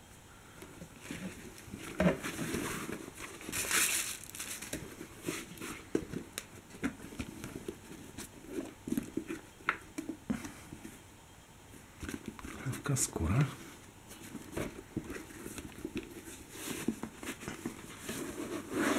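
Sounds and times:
box and paper rustling: 0.8 - 10.9, 14.1 - 18.9.

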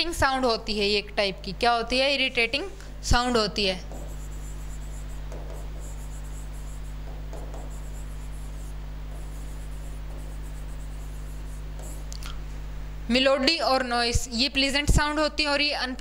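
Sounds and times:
low electrical hum: 0.0 - 16.0
stylus scratching on screen: 3.8 - 12.2.

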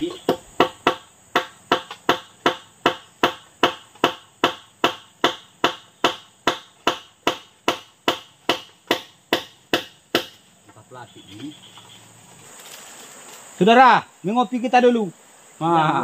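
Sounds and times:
sharp knocks: 0.0 - 10.4
insects trilling: 0.0 - 16.0.

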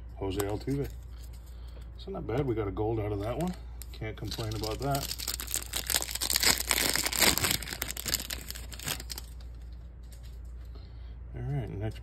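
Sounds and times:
wrapper crinkling and tearing: 4.2 - 10.3.

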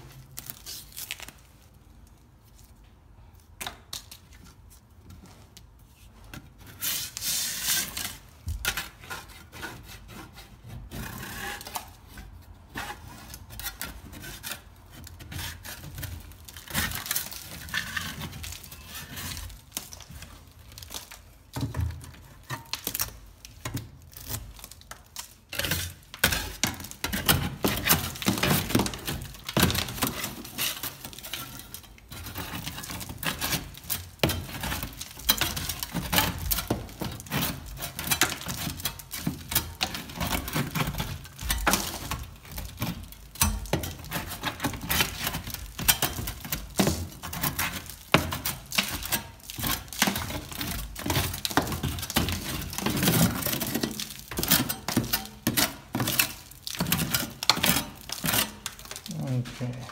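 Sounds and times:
hand tool scraping plaster: 6.1 - 59.9
bits of plaster falling: 13.5 - 59.8.

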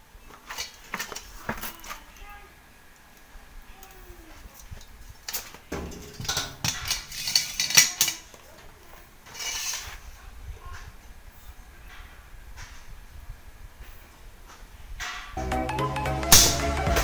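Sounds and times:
rustle: 0.0 - 15.4
metal clinking and clattering: 5.2 - 8.5, 9.3 - 10.0.

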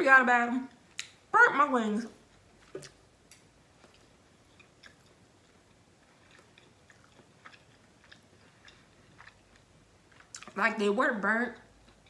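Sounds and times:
person chewing: 2.2 - 10.6.

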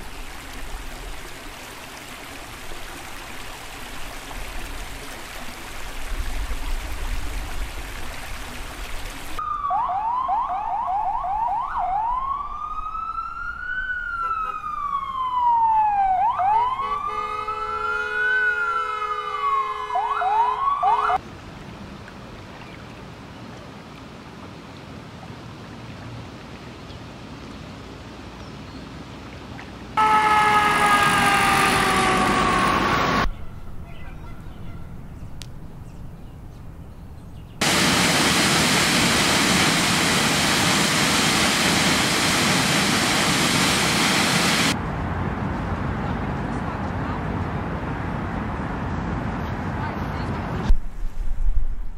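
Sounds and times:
emergency siren wailing: 9.4 - 21.2, 30.0 - 33.3
waterfall rushing: 30.0 - 33.3, 37.6 - 44.8.

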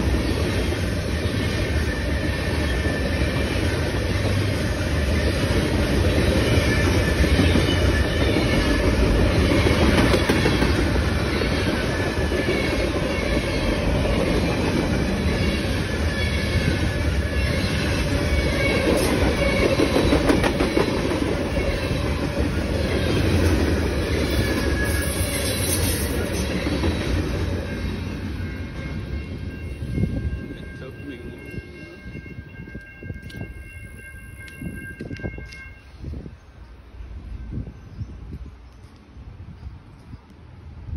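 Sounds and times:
freight train rumbling past: 0.0 - 40.9.

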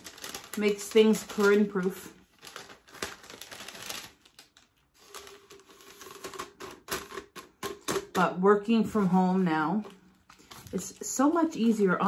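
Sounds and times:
plastic sleeve rustling: 0.0 - 7.4, 9.5 - 12.0.

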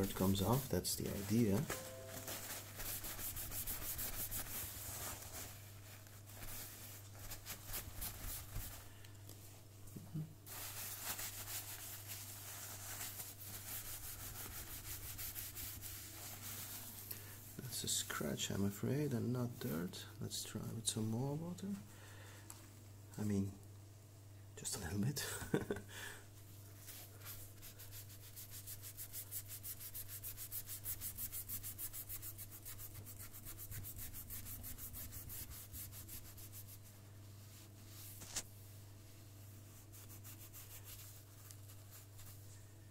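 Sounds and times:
wet sponge scrubbing: 0.0 - 1.6, 2.2 - 8.8, 10.5 - 17.0, 26.8 - 42.4
paper towel scuffing on turntable: 0.0 - 8.8, 26.8 - 38.7.

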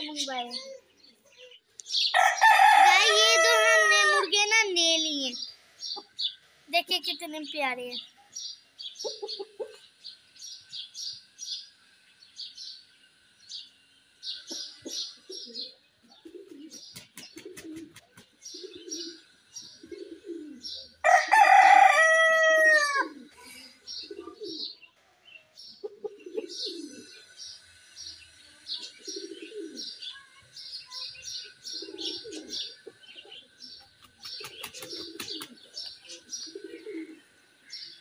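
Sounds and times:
small birds chirping: 0.0 - 21.2, 23.2 - 38.0
rooster crowing: 2.1 - 4.3, 21.0 - 23.2
low soft bird calls: 7.5 - 21.0, 23.2 - 38.0.

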